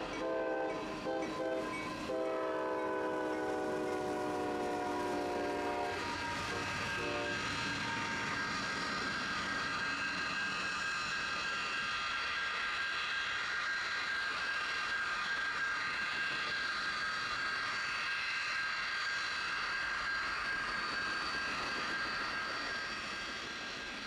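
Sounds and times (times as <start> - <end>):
jet turbine whine: 0.0 - 24.0
rumble of passing train: 0.0 - 24.0
locomotive horn: 0.2 - 7.4.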